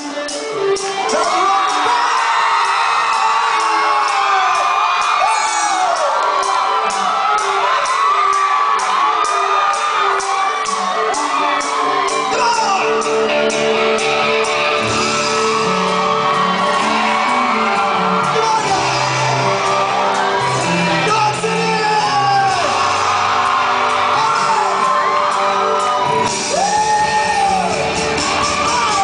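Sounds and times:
drums: 0.0s - 29.0s
electric guitar: 10.2s - 29.0s
singer shouting into microphone: 12.2s - 13.1s, 20.8s - 23.0s.

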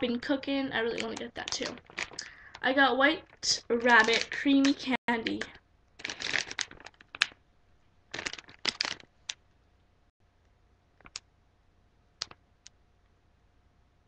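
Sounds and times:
plastic bag crinkling: 0.8s - 2.6s, 3.2s - 7.4s, 8.1s - 9.4s.

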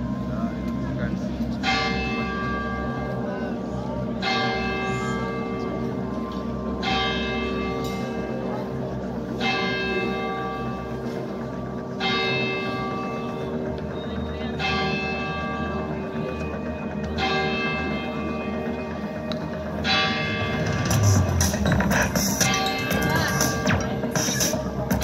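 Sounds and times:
church bell tolling: 1.6s - 3.6s, 4.2s - 13.7s, 14.4s - 16.1s, 17.2s - 21.2s.

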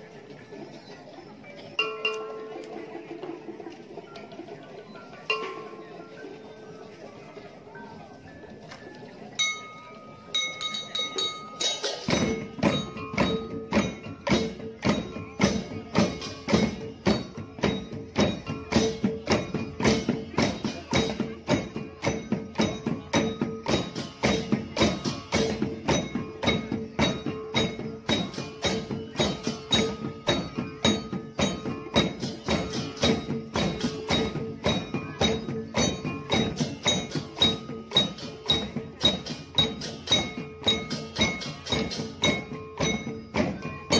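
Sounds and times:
drums: 0.0s - 43.9s
wooden cowbells clattering: 1.6s - 7.3s, 9.2s - 43.9s
cymbals: 9.4s - 43.9s.

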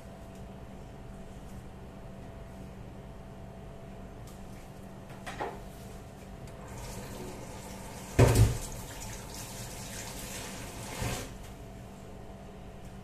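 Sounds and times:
tap running into steel sink: 8.1s - 8.8s.

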